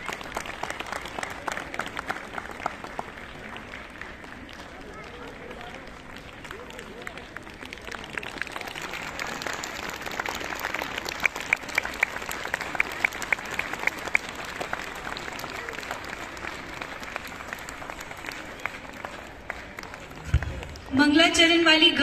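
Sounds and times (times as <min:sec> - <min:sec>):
nearby person clapping: 0:00.0 - 0:20.9
audience applauding: 0:00.0 - 0:21.0.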